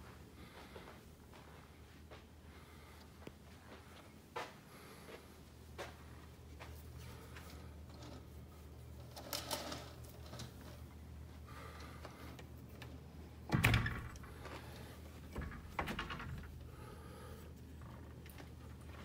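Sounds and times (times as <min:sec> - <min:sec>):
steady low hum: 0:00.0 - 0:19.0
small clicks and rustles: 0:05.8 - 0:13.4, 0:17.4 - 0:19.0.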